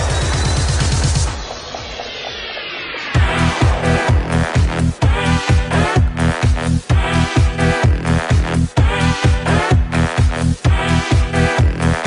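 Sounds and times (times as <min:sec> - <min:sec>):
sustained synth chords: 0:00.0 - 0:07.6
heavy kick drum: 0:03.2 - 0:11.8.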